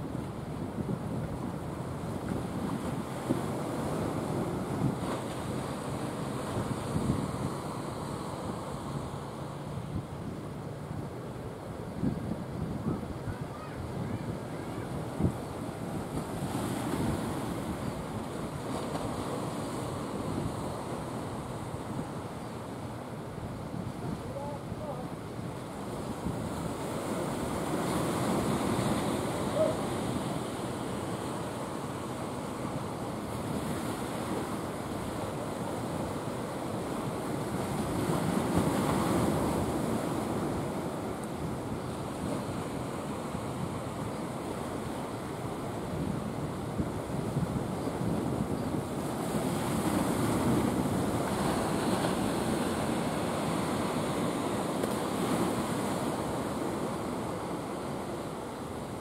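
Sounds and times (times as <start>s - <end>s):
sea surf washing onto beach: 0.0s - 59.0s.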